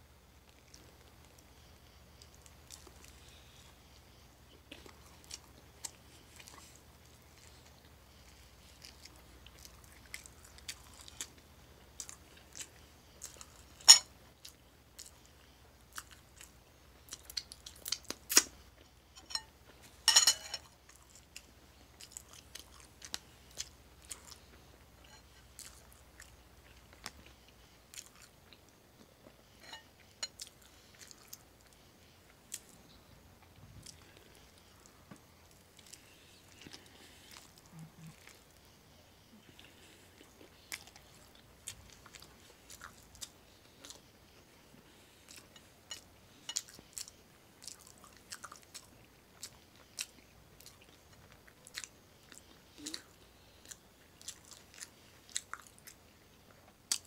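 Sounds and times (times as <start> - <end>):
person chewing sandwich: 0.4 - 57.0.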